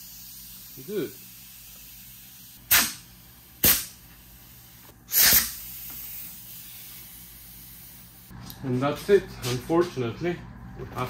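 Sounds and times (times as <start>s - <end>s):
pneumatic gun air hiss: 0.0s - 8.3s.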